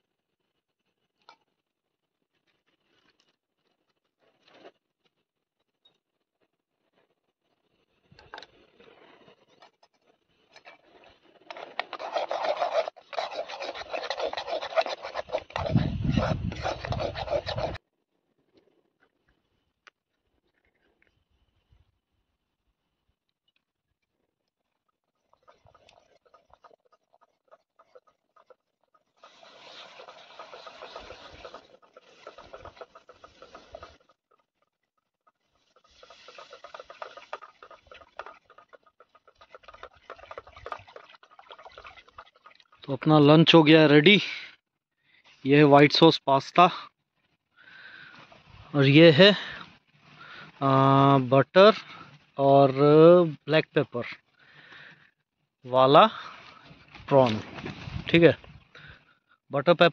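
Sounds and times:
milk pouring: 11.0s - 17.8s, 35.7s - 43.6s
metal spoon stirring: 11.4s - 17.8s, 25.0s - 43.6s.

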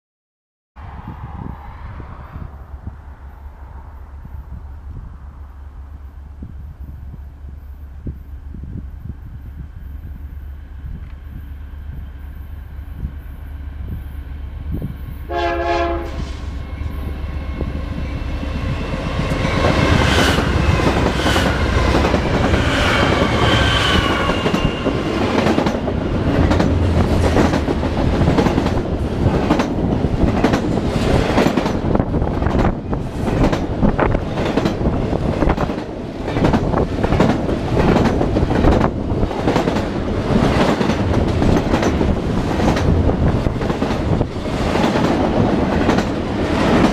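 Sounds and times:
diesel locomotives rumbling: 0.8s - 46.9s
train horn blast: 15.3s - 16.7s
freight cars clattering on rails: 19.2s - 46.9s.

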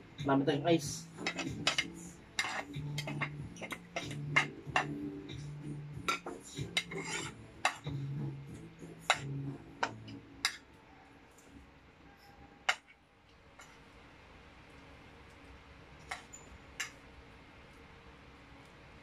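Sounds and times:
cutlery clinking on plates: 1.2s - 5.0s, 6.1s - 7.9s.

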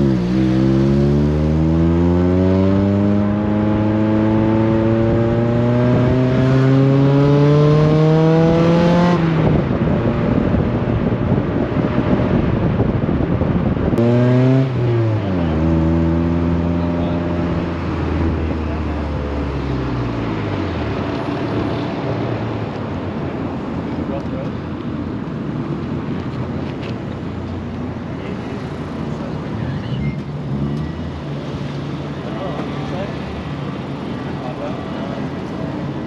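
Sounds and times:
car engine accelerating: 0.0s - 22.8s
road and wind noise: 0.0s - 36.0s.

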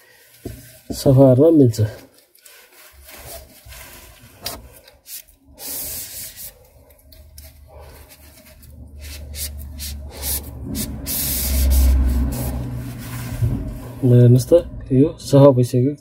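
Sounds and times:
tissue swishing on roller: 2.4s - 6.6s, 10.1s - 14.1s.

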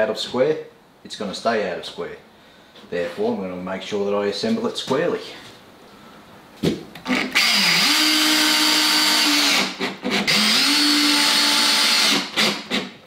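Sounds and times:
cordless drill driving screws: 7.0s - 12.9s.

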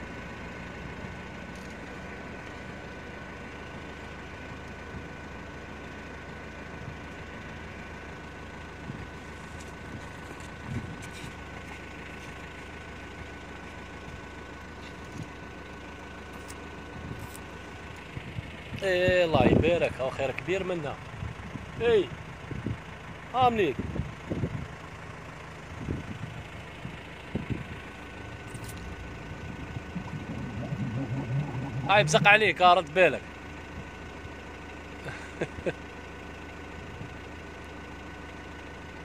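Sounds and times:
vehicle engine idling: 0.0s - 39.0s
thin steady whine: 27.4s - 33.3s.

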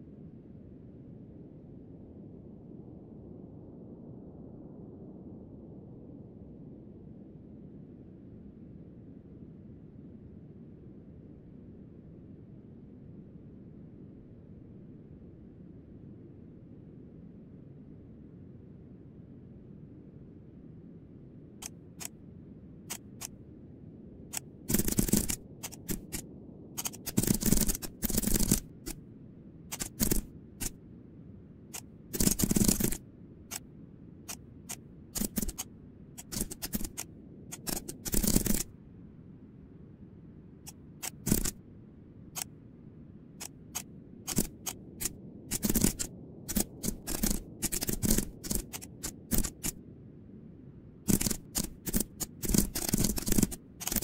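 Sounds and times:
mouse buttons clicking: 22.9s - 23.3s, 24.3s - 26.2s, 26.8s - 29.0s, 29.7s - 30.8s, 31.7s - 33.0s, 34.3s - 38.7s, 40.7s - 41.6s, 43.4s - 49.8s, 51.1s - 54.0s
keyboard keys clicking: 24.3s - 26.2s, 26.8s - 29.0s, 29.7s - 30.7s, 31.7s - 33.0s, 34.3s - 38.7s, 41.0s - 41.5s, 43.4s - 49.8s, 51.1s - 54.0s.

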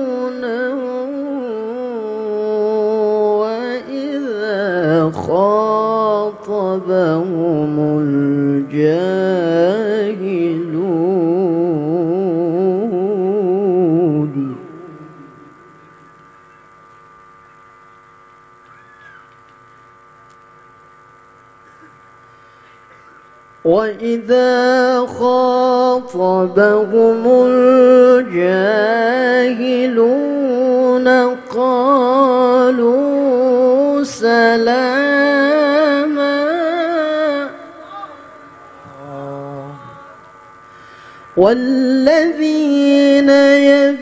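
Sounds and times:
man reciting melodic chant: 0.0s - 16.3s, 23.6s - 44.0s.

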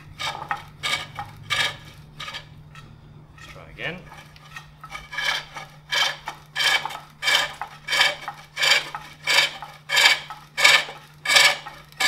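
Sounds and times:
hook tool rasping on wood: 0.2s - 12.0s.

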